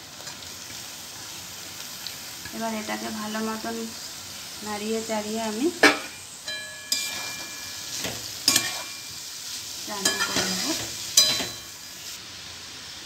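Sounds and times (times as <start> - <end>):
steady sizzle: 0.0 - 13.0
metal spatula scraping a pan: 5.8 - 11.9.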